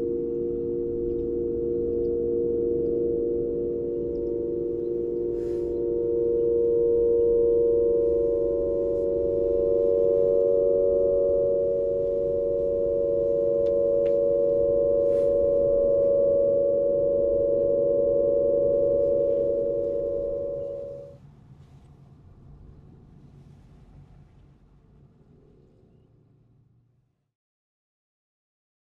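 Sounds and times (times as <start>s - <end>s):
aeolian harp drone: 0.0s - 21.2s.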